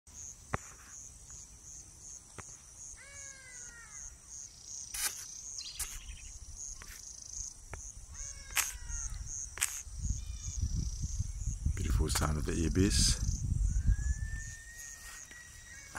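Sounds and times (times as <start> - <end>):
ibis calling: 0.1 - 15.9
insects trilling: 0.1 - 15.9
sharp clicks: 8.5 - 8.9, 9.6 - 9.9.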